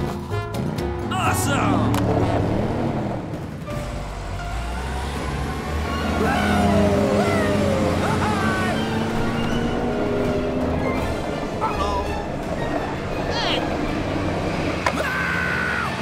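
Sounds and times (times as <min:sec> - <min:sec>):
background music: 0:00.0 - 0:16.0
cartoon car engine rumble: 0:00.8 - 0:16.0.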